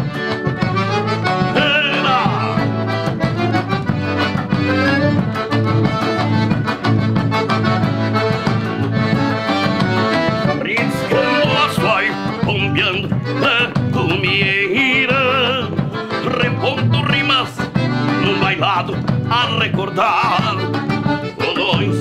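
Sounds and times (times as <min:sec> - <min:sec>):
accordion: 0:00.0 - 0:22.0
band playing dance music: 0:00.0 - 0:22.0.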